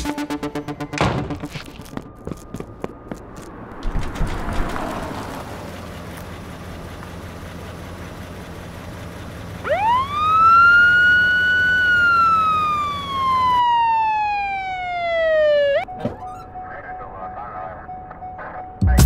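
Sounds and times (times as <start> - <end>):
siren winding up: 9.6 - 16.6.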